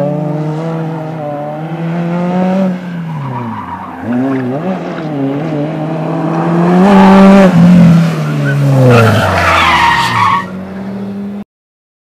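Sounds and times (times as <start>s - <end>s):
car engine revving: 0.0s - 11.4s
tyres squealing: 8.1s - 10.6s.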